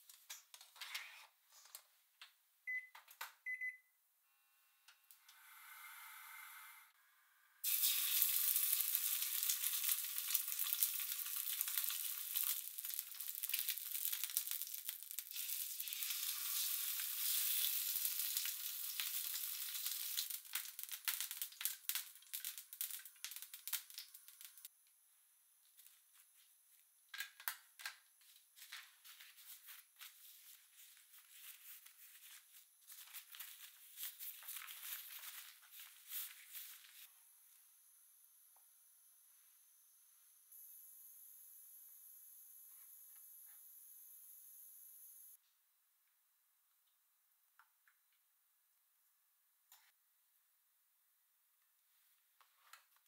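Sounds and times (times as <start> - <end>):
fish sizzling in a frying pan: 7.6 - 24.7.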